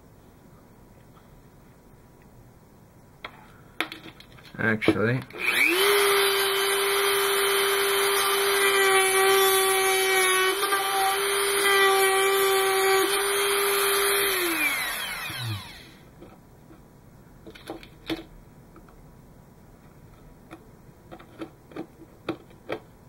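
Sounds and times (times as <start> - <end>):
rotary tool whine: 5.4 - 16.1.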